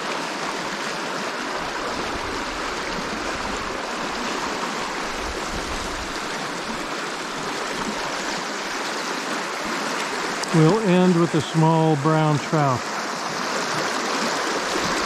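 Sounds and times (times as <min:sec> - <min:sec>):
river water flowing: 0:00.0 - 0:15.0
wind buffeting microphone: 0:01.8 - 0:08.3.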